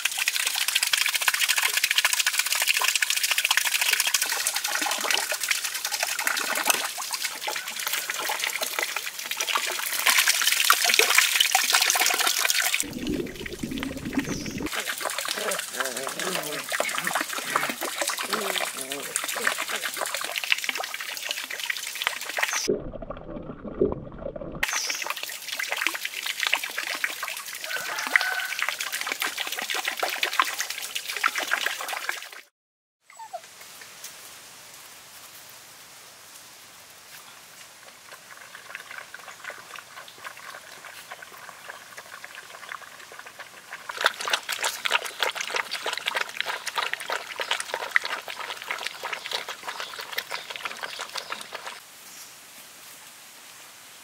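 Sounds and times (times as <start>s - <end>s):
water splashing in a pond: 0.0s - 32.5s, 37.0s - 51.9s.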